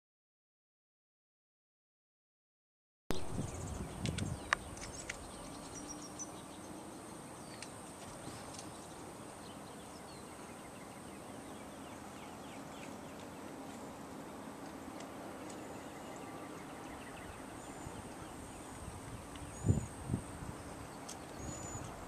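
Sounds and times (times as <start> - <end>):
bird chirps: 3.1 - 13.5, 15.4 - 22.0
steady outdoor hiss: 3.1 - 22.0
high insect drone: 3.2 - 22.0.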